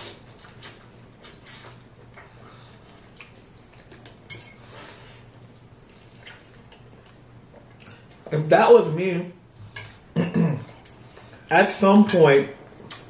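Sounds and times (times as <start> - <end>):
chewing: 0.0 - 8.3.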